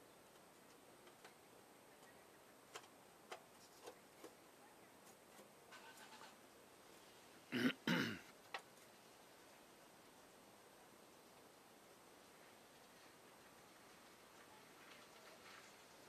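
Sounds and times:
faint light ticks and clicks: 0.2 - 4.4.

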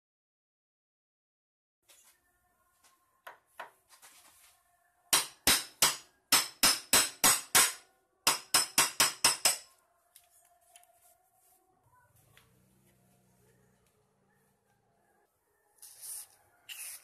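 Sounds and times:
hammer striking metal: 5.1 - 9.7.

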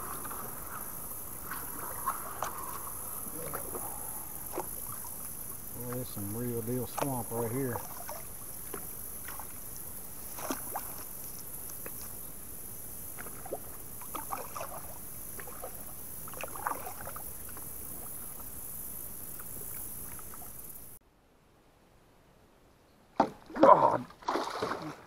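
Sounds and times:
grass rustling: 0.0 - 21.0
steady high hiss: 0.0 - 21.0
small water splashes: 1.4 - 12.2, 13.0 - 20.9, 23.2 - 25.0.

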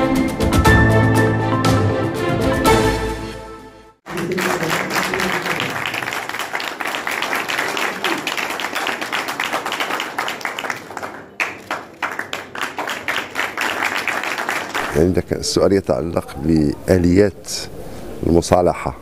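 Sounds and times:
audience applauding: 4.1 - 15.2.

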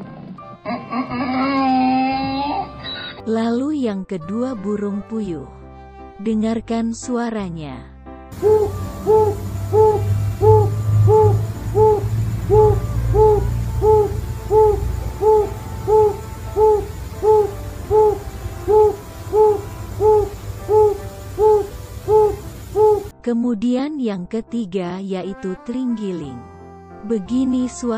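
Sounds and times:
quail hooting calls: 8.4 - 23.1.

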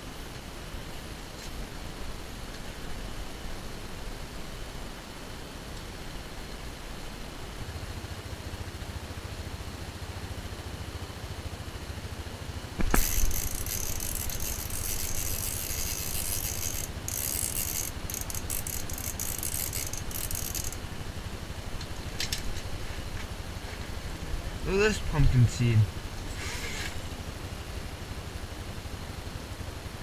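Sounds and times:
sharp knock: 12.8 - 13.1
fishing reel drag clicking: 12.8 - 20.8.

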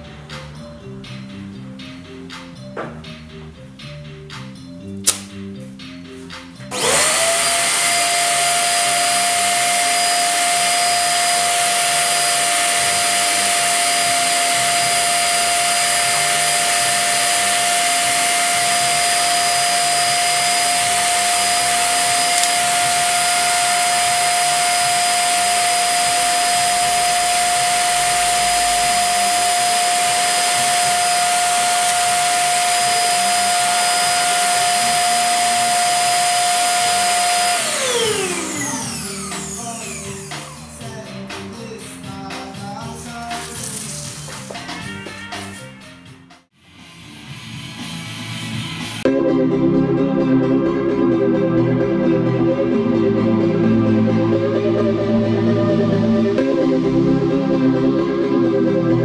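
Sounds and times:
electric blower motor whine: 6.7 - 40.9.

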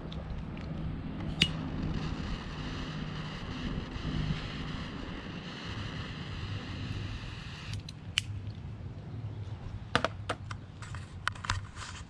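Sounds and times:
lighter flame hissing: 1.3 - 8.3
lighter clicking: 7.4 - 8.3.

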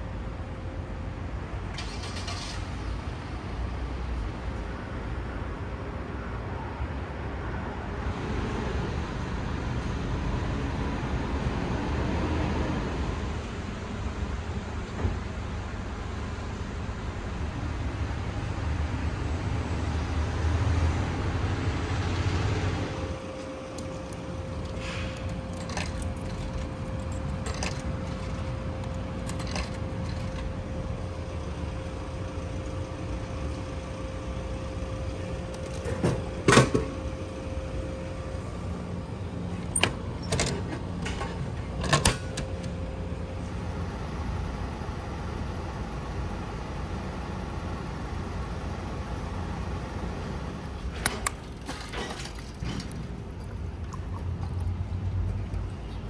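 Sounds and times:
street hum: 0.0 - 56.0
vending machine clunk: 35.7 - 37.0.

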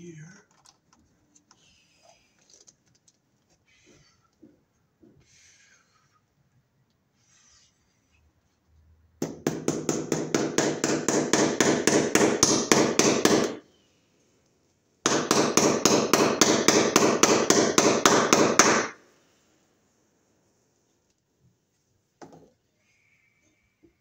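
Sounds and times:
hammer tapping staples: 9.2 - 13.6, 15.0 - 19.0.

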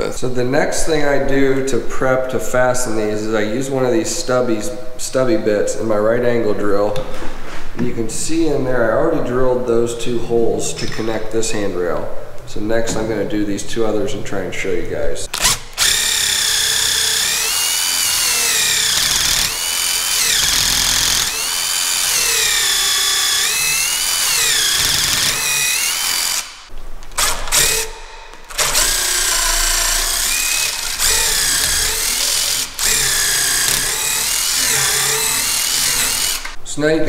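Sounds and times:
drill motor whine boring wood: 15.4 - 26.7, 28.6 - 36.6.

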